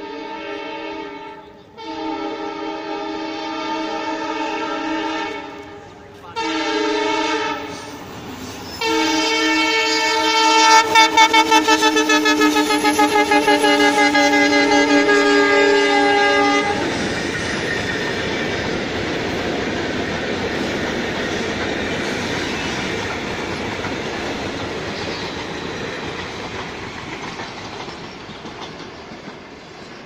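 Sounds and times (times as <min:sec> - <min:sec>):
train horn: 0:00.0 - 0:08.0, 0:08.8 - 0:17.0
train wheels rolling on rails: 0:00.0 - 0:30.0.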